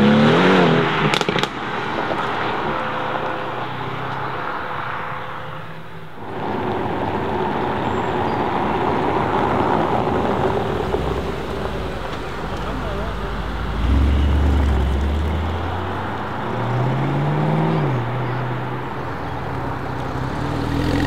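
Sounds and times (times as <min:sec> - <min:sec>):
car engine at low revs: 0:06.2 - 0:21.0
car engine driving off: 0:06.2 - 0:21.0
tyres rolling over cobblestones: 0:06.2 - 0:21.0.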